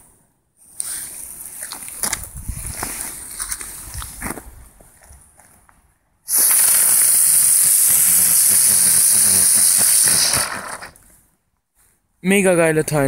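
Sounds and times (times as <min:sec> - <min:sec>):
firework hissing: 0:06.3 - 0:11.2.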